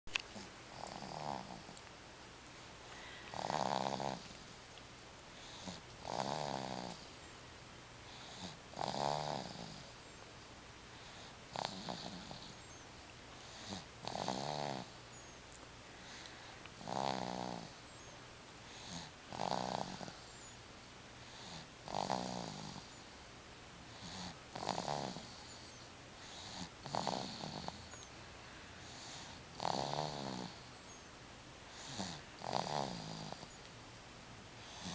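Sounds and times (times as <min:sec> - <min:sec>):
baby snoring: 0:00.4 - 0:01.8, 0:03.0 - 0:04.4, 0:05.4 - 0:07.1, 0:08.1 - 0:09.9, 0:11.0 - 0:12.8, 0:13.4 - 0:15.0, 0:16.8 - 0:17.8, 0:18.7 - 0:20.3, 0:21.3 - 0:23.0, 0:23.9 - 0:27.9, 0:28.9 - 0:30.7, 0:31.7 - 0:33.6, 0:34.6 - 0:34.9.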